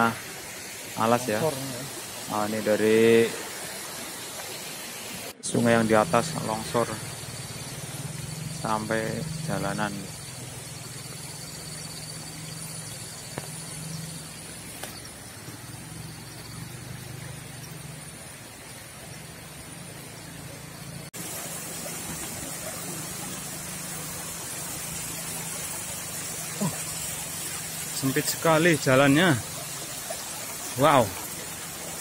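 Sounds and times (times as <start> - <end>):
water rushing over road: 0.0 - 32.0
motorcycle engine running: 5.6 - 18.2.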